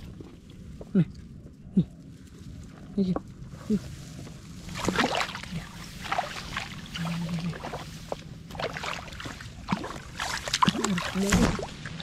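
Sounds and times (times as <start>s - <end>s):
shallow water splashing: 4.4s - 12.0s.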